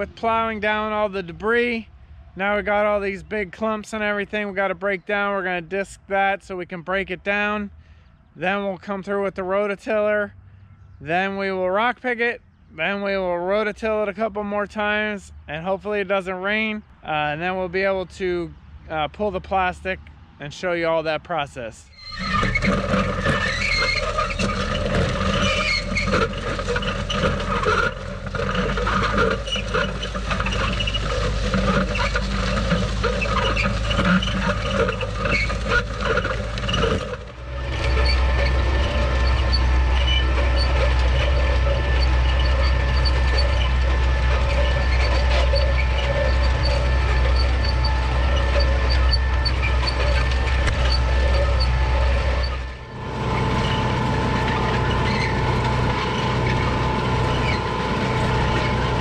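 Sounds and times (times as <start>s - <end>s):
tractor engine running: 0.0s - 7.6s, 12.6s - 59.0s
disc blades scraping soil: 21.9s - 59.0s.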